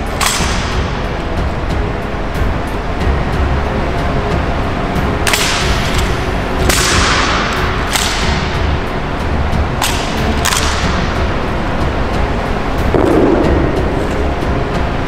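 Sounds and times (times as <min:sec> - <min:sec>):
hands slapping rifles: 0:07.9 - 0:08.4, 0:09.8 - 0:10.9.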